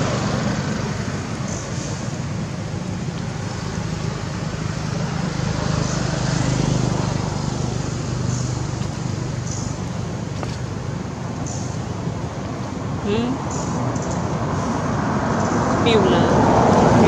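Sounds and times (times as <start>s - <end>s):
road traffic: 0.0s - 17.0s
vehicle engine humming: 0.0s - 17.0s.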